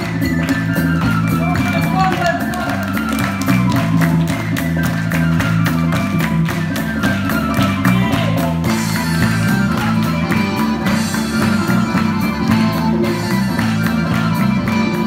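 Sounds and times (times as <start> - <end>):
lively dance music: 0.0 - 15.0.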